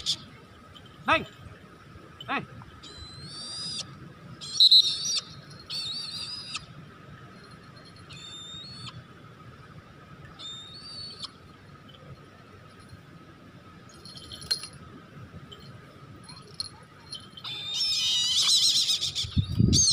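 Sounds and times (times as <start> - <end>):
high wavering whistled calls: 2.8 - 6.7, 8.0 - 9.0, 10.3 - 11.4, 17.3 - 19.9.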